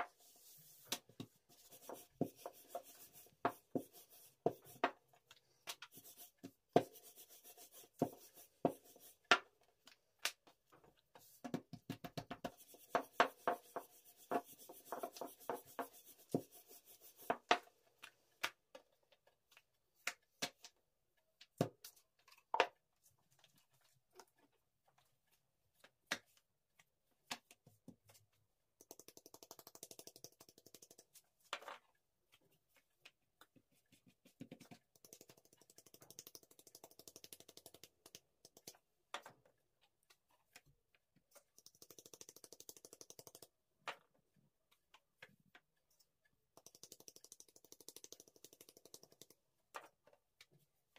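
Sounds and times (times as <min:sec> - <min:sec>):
dough rubbing: 0:00.1 - 0:04.8, 0:05.9 - 0:09.2, 0:12.4 - 0:17.5.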